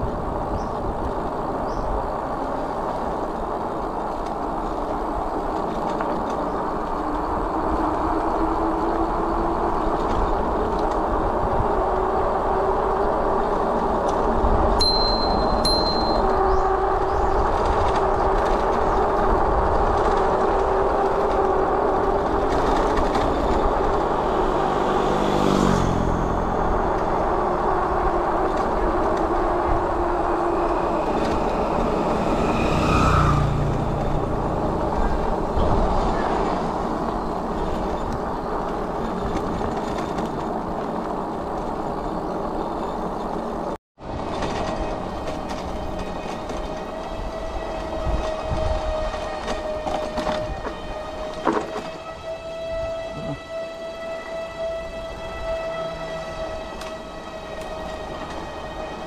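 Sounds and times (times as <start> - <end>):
wind rushing on microphone: 0.0 - 59.0
passing vehicle engine: 4.7 - 38.8.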